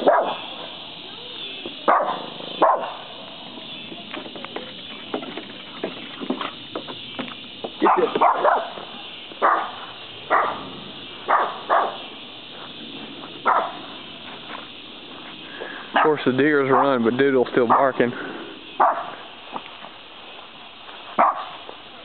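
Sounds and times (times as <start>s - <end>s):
small dog barking: 0.0s - 0.4s, 1.9s - 3.1s, 7.8s - 8.8s, 9.4s - 10.7s, 11.3s - 12.0s, 13.4s - 13.9s, 17.7s - 17.9s, 18.8s - 19.2s, 21.2s - 21.6s.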